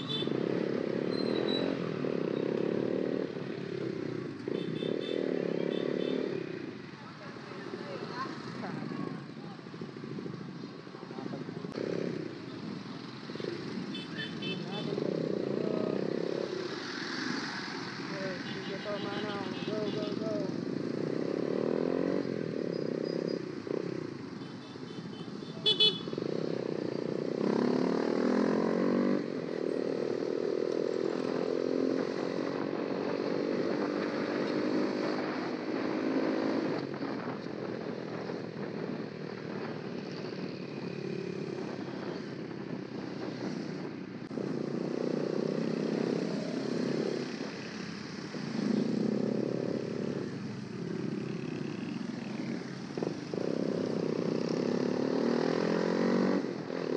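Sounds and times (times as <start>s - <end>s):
motorcycle engine revving: 0.0s - 9.2s, 11.2s - 24.2s, 25.2s - 56.9s
vehicle horn toot: 25.0s - 26.1s
wind noise on microphone: 36.7s - 40.5s.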